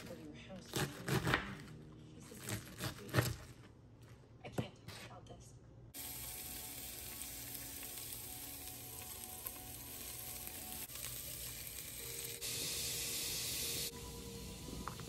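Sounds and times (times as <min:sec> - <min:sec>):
food sizzling in a frying pan: 0:06.0 - 0:15.0
sharp hiss: 0:12.0 - 0:14.0.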